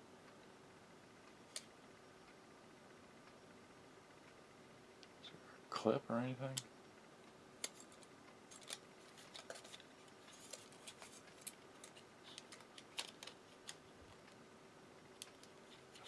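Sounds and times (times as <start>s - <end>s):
small clicks of plastic parts: 7.6s - 14.4s.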